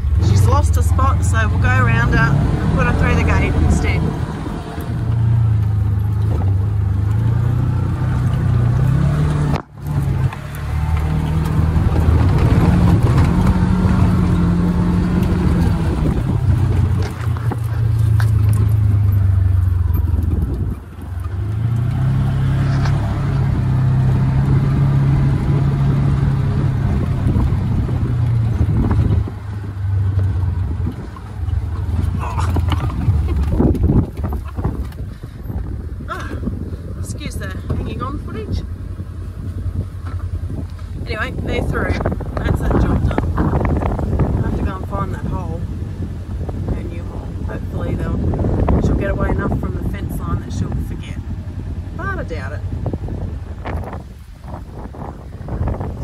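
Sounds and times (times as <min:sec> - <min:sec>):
utility vehicle engine running: 0:00.0 - 0:56.0.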